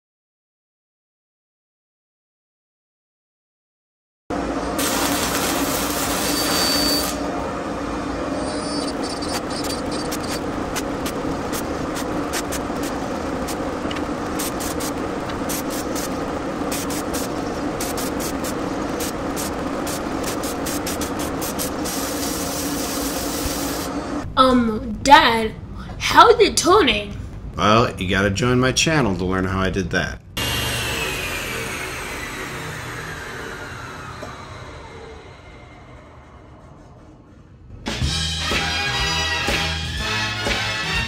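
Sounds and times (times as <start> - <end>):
electric arc welding crackling: 4.8 - 7.2, 9.2 - 24.2.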